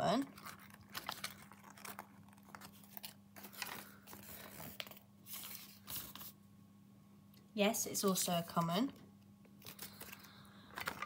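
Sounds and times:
packaging crinkling: 0.2s - 6.3s, 9.6s - 11.0s.

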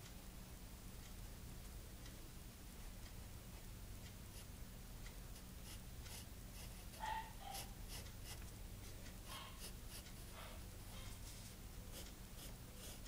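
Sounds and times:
pencil scratching on paper: 5.3s - 8.5s, 9.2s - 10.6s, 11.2s - 13.0s.

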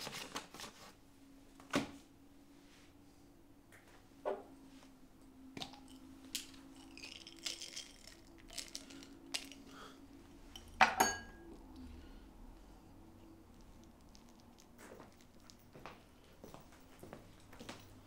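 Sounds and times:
faint steady hum: 0.0s - 18.0s
pills clicking and rattling: 5.6s - 9.8s, 13.5s - 15.6s
glass clinking on wooden table: 10.8s - 11.4s.

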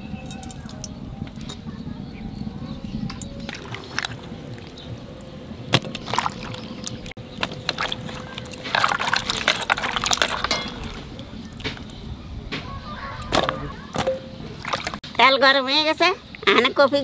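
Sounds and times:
water sloshing and splashing: 3.1s - 12.0s, 13.4s - 15.1s
wet pieces knocking into bowl: 7.4s - 11.0s.

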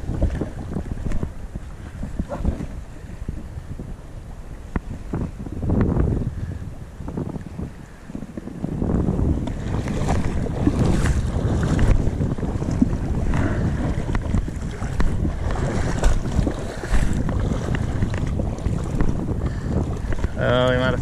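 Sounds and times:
knocks and splashes: 0.0s - 2.8s, 9.2s - 20.4s
wind buffeting microphone: 0.0s - 21.0s.

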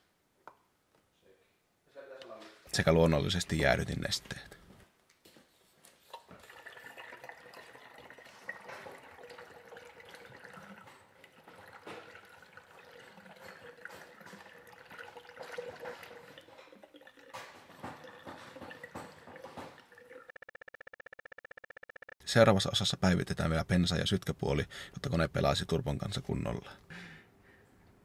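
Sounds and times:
liquid pouring into a funnel: 6.1s - 20.3s.

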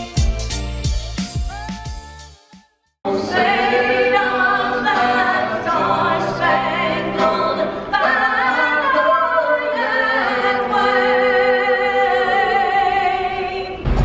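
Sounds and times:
loud music with heavy bass: 0.0s - 2.6s.

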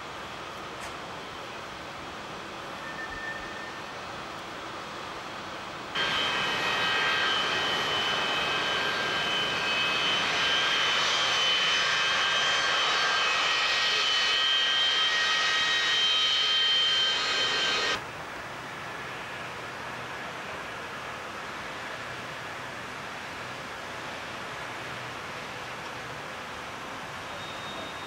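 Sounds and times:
jet engines whining: 6.0s - 18.0s.

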